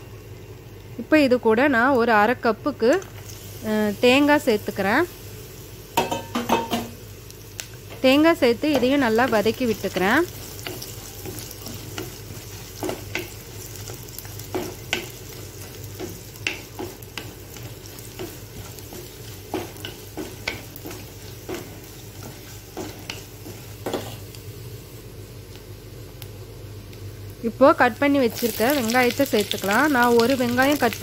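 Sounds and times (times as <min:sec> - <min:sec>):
food sizzling in oil: 0:00.0 - 0:31.0
spatula scraping and tapping pan: 0:08.7 - 0:24.3.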